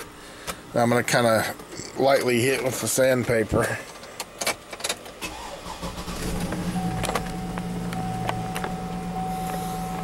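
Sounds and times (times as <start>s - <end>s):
low electrical hum: 0.0s - 10.0s
high steady whine: 5.6s - 10.0s.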